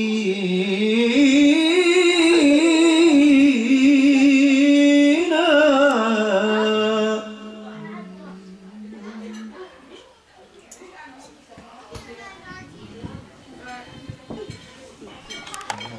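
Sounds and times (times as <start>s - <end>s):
man singing melismatic phrase: 0.0s - 9.4s.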